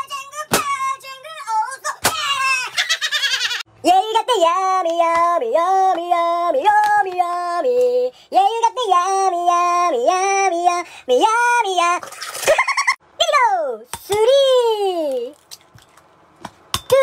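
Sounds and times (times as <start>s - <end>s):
high-pitched voice singing: 0.0s - 2.8s, 3.8s - 12.1s.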